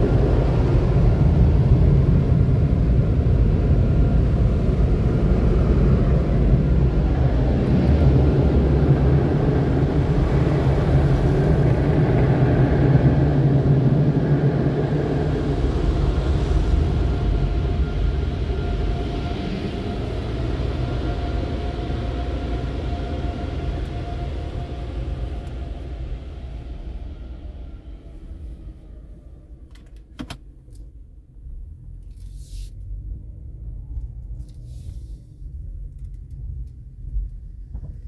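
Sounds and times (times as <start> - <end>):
car wash machinery rumble and whine: 0.0 - 30.4
brief hisses: 32.2 - 32.8, 34.6 - 35.4.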